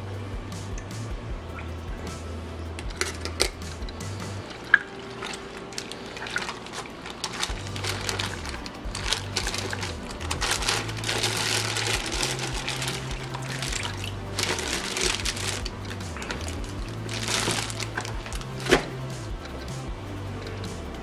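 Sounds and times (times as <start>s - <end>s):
background music with bass line: 0.0s - 21.0s
water splashing in a bucket: 2.8s - 19.8s
plastic bag crinkling: 4.5s - 19.6s.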